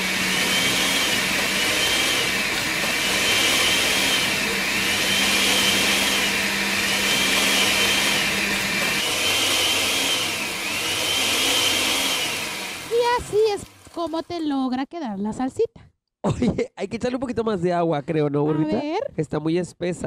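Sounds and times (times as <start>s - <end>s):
blender running: 0.0s - 14.6s.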